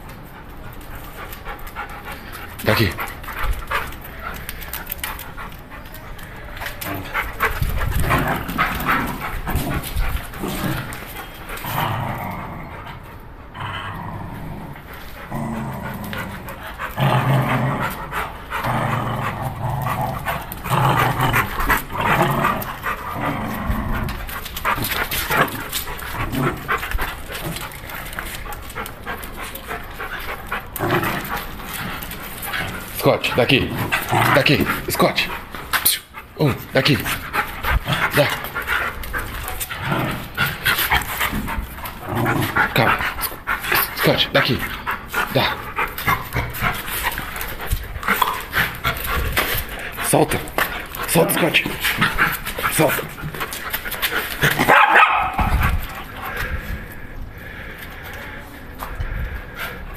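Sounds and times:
dogs growling low: 0.0 - 59.9
dogs panting: 0.0 - 59.9.

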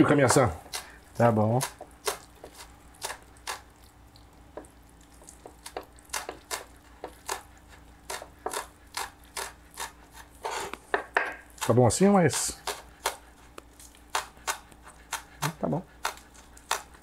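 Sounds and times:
knife tapping on cutting board: 10.9 - 11.4.

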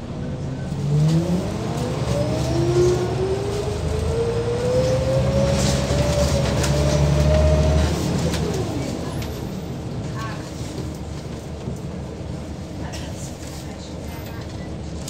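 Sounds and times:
bus engine accelerating: 0.0 - 15.0.

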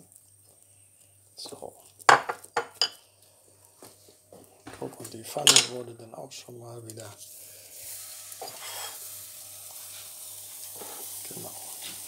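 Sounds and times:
batter sizzling in a frying pan: 6.6 - 12.0.

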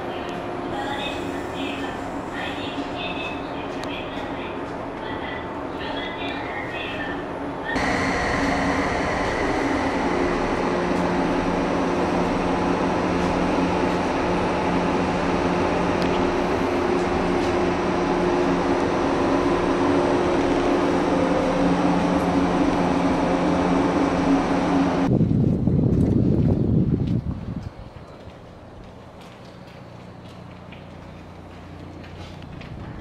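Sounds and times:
electric train equipment humming: 0.0 - 25.2.

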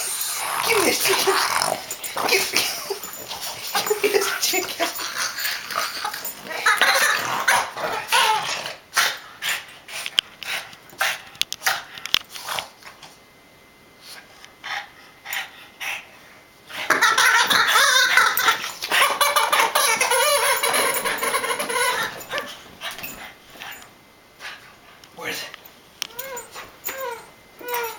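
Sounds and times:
dog growling and barking: 0.0 - 9.7, 16.8 - 23.3.

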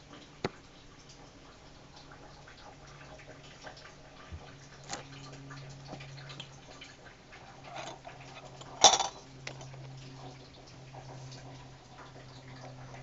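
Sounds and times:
low steady hum: 0.0 - 13.0
glassware clinking: 8.6 - 9.6.

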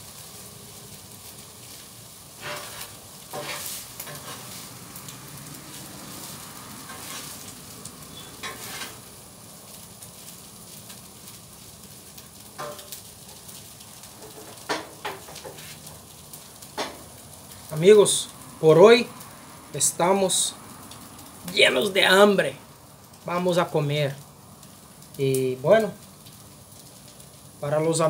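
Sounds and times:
rice sizzling on a griddle: 0.0 - 28.0
metal spatulas scraping a griddle: 2.3 - 4.7, 6.8 - 7.5, 8.1 - 9.1, 12.6 - 12.9, 14.2 - 16.0.

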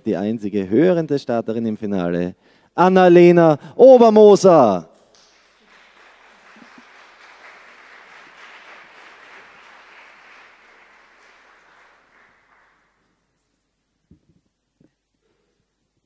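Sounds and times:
audience applauding: 5.1 - 13.2.

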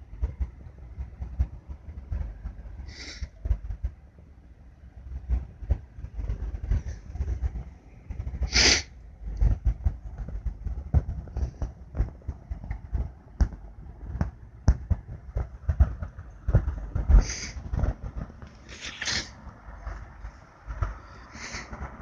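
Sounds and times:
low rumble: 0.0 - 22.0
short bursts of hiss: 2.9 - 3.3, 8.5 - 8.9, 17.2 - 17.6, 18.7 - 19.3.

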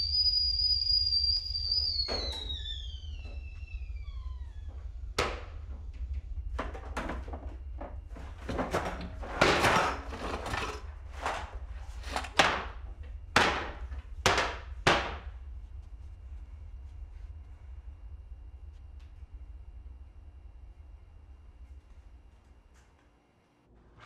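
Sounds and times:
cabinet doors and drawers knocking: 8.4 - 11.4, 12.0 - 12.8
kitchenware clattering: 8.5 - 12.7.

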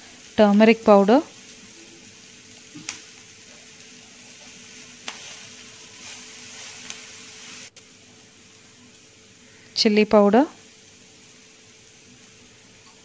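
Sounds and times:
onions sizzling in oil: 0.0 - 13.0.

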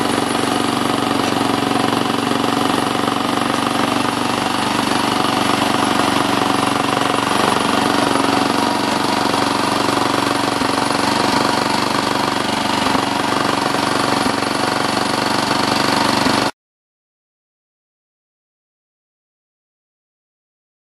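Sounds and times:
miniature locomotive engine running: 0.0 - 16.5
wheels rattling on track: 0.0 - 16.5.

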